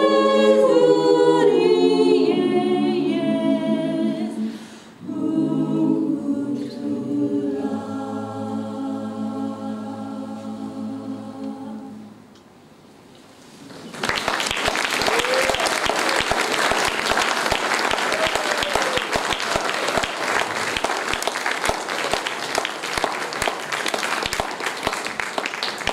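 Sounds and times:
audience applauding: 0:13.6 - 0:25.9.

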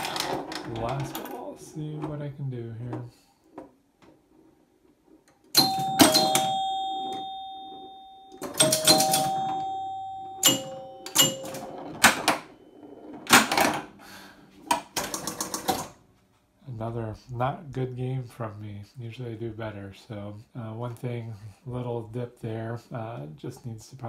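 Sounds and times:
pinball score chimes ringing: 0:05.5 - 0:13.7
pinball machine mechanical clacks: 0:05.6 - 0:13.9, 0:14.7 - 0:15.9.

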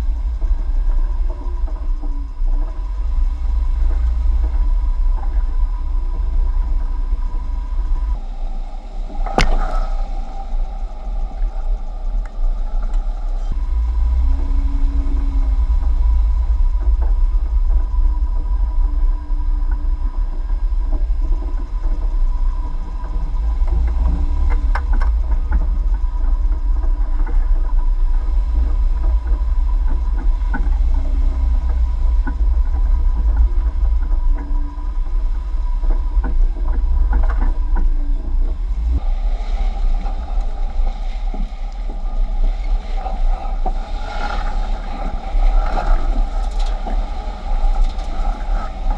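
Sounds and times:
vehicle low rumble: 0:00.0 - 0:48.9.

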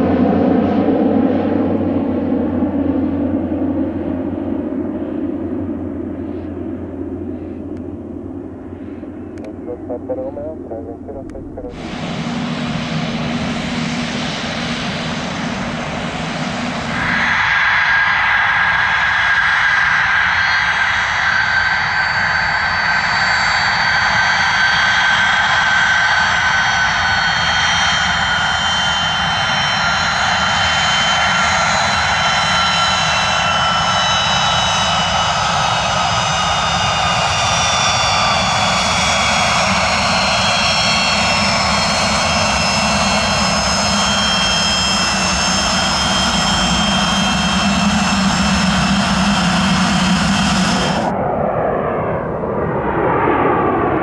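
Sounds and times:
jet engines whining: 0:00.0 - 0:54.0.

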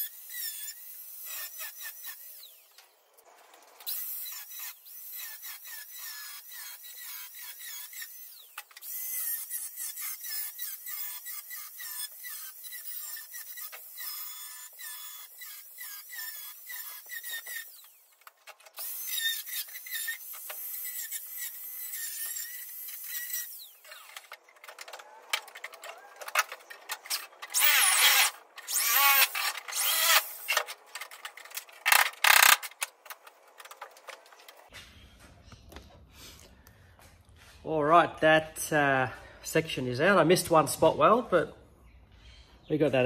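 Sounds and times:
angle grinder cutting metal: 0:00.0 - 0:02.6, 0:03.8 - 0:32.9
metal screeching: 0:22.0 - 0:32.6.

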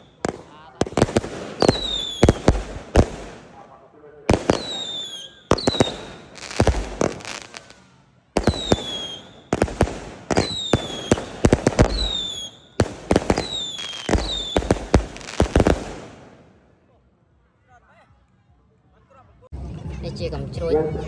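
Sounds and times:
firework bangs and crackles: 0:00.0 - 0:16.6.

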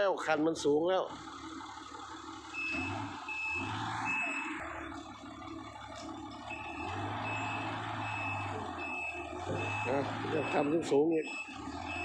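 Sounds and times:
loader engine running: 0:00.0 - 0:12.0
reversing alarm beeping: 0:02.5 - 0:04.8, 0:06.4 - 0:12.0.

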